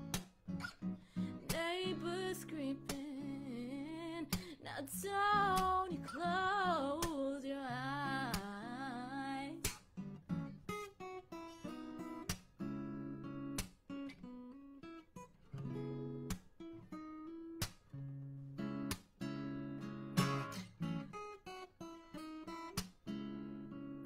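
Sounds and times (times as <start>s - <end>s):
strummed acoustic guitar: 0.0s - 24.0s
woman singing with vibrato: 1.3s - 9.6s.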